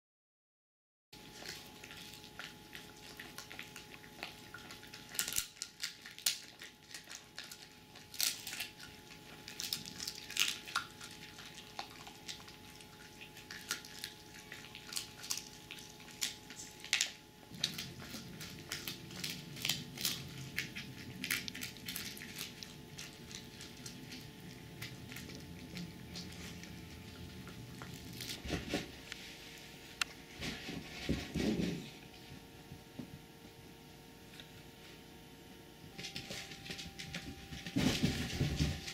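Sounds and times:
dog gnawing hard chew: 1.2s - 28.9s.

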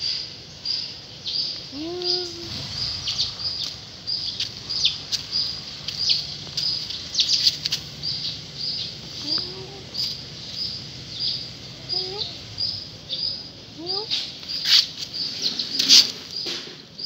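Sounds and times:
small birds chirping: 0.0s - 17.0s
cat meowing: 9.2s - 10.0s.

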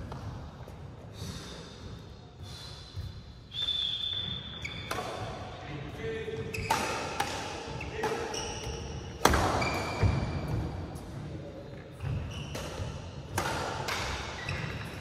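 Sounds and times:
shoes squeaking on court: 3.0s - 5.4s, 6.3s - 7.1s, 7.7s - 10.8s, 11.9s - 13.1s, 13.9s - 15.0s
racket hitting shuttlecock: 6.5s - 10.8s, 12.0s - 15.0s.

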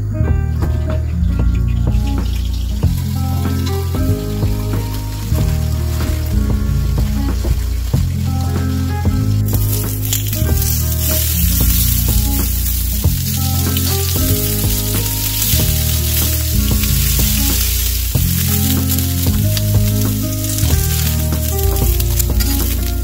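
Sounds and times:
background music with bass: 0.0s - 23.0s
chicken gizzards sizzling in a pan: 2.3s - 23.0s
metal tongs turning food: 7.3s - 23.0s.

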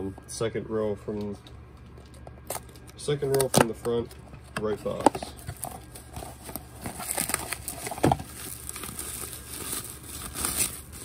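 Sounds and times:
bubble wrap crinkling: 5.3s - 11.0s.

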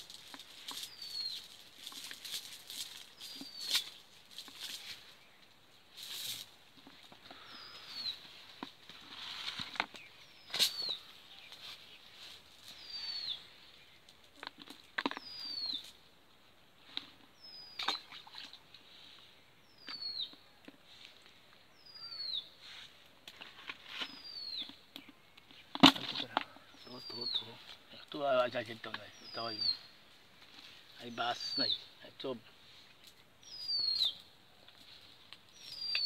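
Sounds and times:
cast net rustling: 0.0s - 12.9s
bird whistling call: 33.4s - 34.2s.

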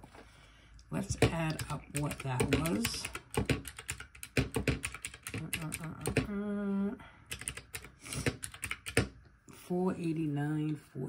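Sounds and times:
calculator keys clicking: 1.1s - 6.3s, 7.3s - 9.2s.

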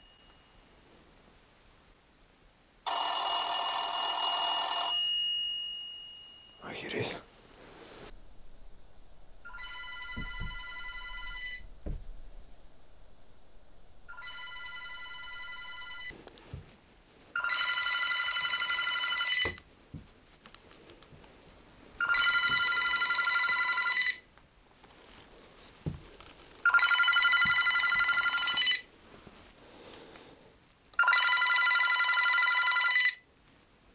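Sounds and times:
telephone ringer trilling: 2.9s - 5.2s, 9.4s - 11.6s, 26.7s - 28.8s, 31.0s - 33.2s
faint knocks: 8.1s - 13.2s.

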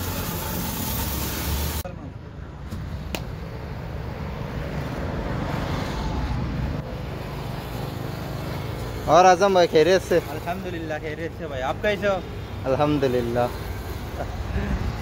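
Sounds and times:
steady loud hiss: 0.0s - 1.9s
road traffic rumble: 0.0s - 15.0s.

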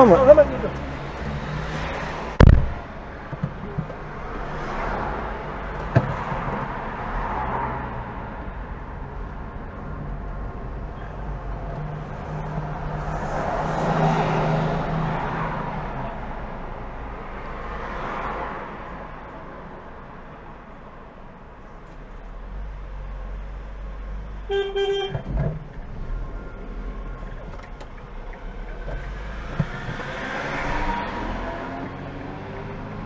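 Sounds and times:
car door slamming: 2.4s - 2.8s.

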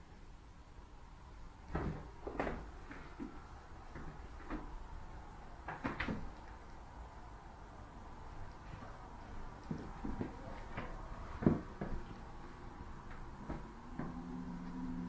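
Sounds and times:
soft knocks and bumps: 1.6s - 5.0s, 8.6s - 14.8s.

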